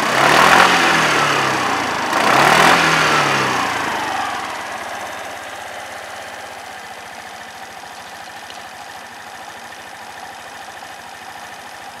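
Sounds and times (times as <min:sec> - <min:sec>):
scooter engine idling: 0:00.0 - 0:12.0.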